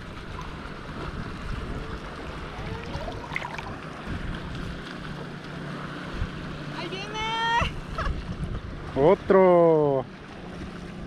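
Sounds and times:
wind buffeting microphone: 0.0 - 5.3, 7.2 - 9.3.

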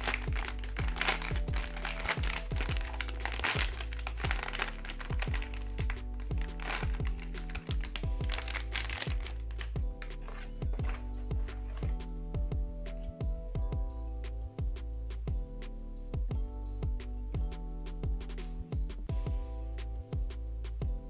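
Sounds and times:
plastic packaging crinkling: 0.0 - 12.0
background music with beat: 0.0 - 21.0.

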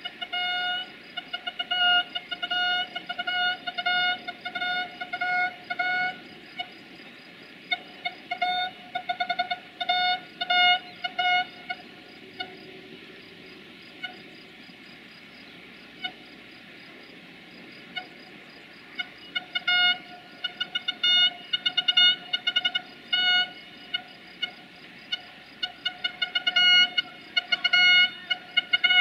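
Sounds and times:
train horn toots: 0.0 - 6.7, 7.7 - 12.8, 14.0 - 14.3, 19.0 - 29.0
faint insect chorus: 0.0 - 29.0.

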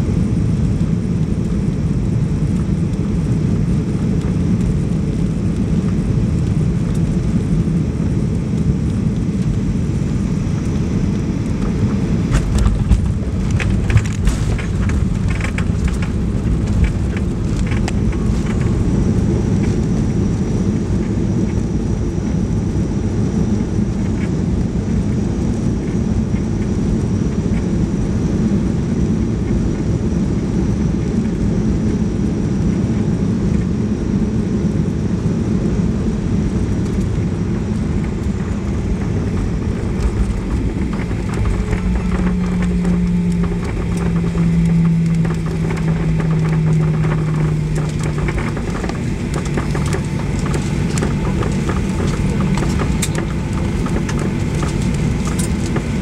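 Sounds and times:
aircraft engines and wheels rumbling: 0.0 - 56.0
small knocks from wheels: 12.2 - 18.9, 38.0 - 56.0
low hum stepping down in pitch: 38.1 - 56.0.

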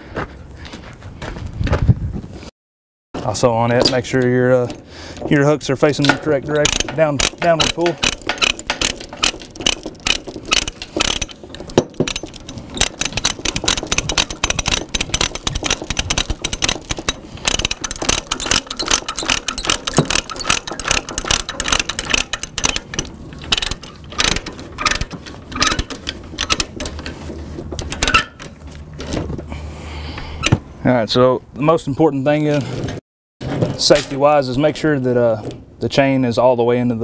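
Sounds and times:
chain links rattling: 5.9 - 29.2, 33.8 - 34.7
ratchet pawl clicking: 6.6 - 26.8.

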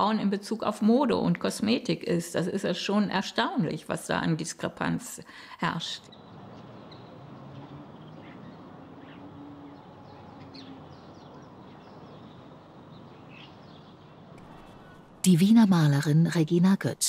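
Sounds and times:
bird chirps and calls: 6.0 - 15.0.

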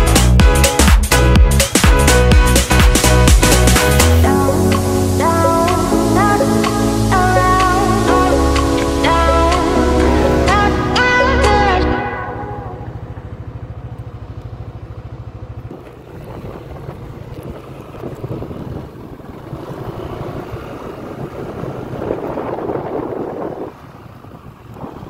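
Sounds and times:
vehicle engine low hum: 0.0 - 25.0
wind buffeting microphone: 14.8 - 25.0.

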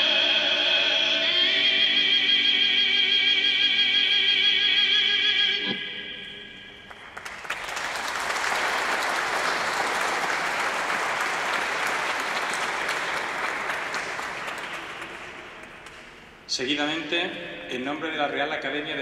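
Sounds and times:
audience applauding: 6.8 - 16.3.

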